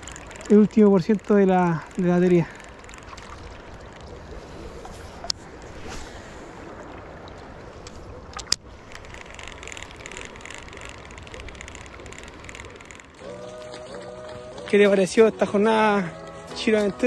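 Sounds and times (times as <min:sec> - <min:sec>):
fishing reel click: 0:00.0 - 0:04.2, 0:07.8 - 0:13.4
fishing reel whirring: 0:00.0 - 0:06.0, 0:07.8 - 0:17.0.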